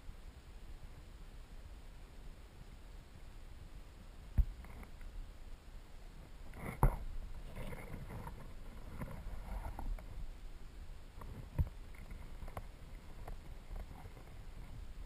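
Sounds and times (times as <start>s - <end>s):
small underwater clicks: 4.4s - 5.2s, 11.2s - 14.7s
underwater river current rumble: 4.4s - 15.0s.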